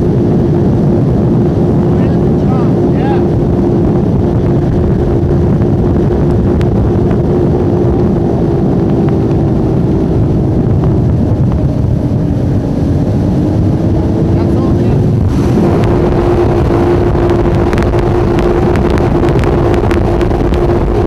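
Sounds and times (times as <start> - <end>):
powerboat engines droning: 0.0 - 21.0
wind buffeting microphone: 0.0 - 21.0.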